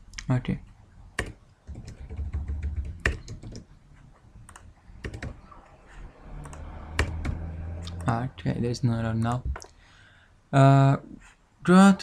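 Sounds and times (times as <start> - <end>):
low hum: 0.6 - 9.6
keyboard keystrokes: 1.2 - 3.6, 4.4 - 5.4, 6.4 - 7.4.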